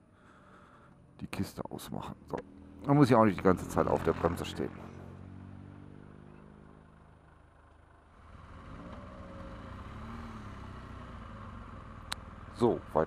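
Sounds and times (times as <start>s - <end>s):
vehicle engine revving: 2.2s - 7.0s, 8.2s - 13.0s
motorcycle engine idling: 6.0s - 9.9s, 10.8s - 13.0s.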